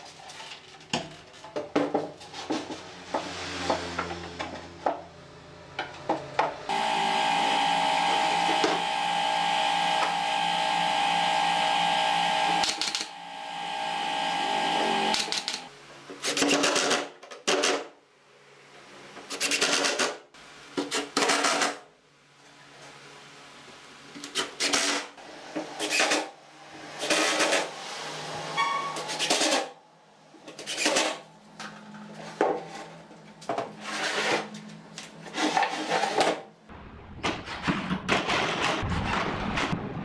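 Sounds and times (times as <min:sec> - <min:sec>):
cordless driver running: 0:06.7 - 0:15.7.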